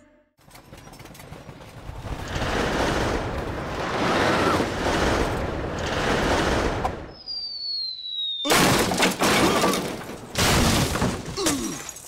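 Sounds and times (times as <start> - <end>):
dense crackling rush: 1.0 - 7.1.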